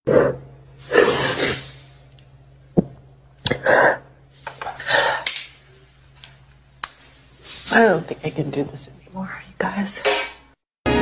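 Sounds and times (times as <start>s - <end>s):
steady low hum: 0.1s - 10.6s.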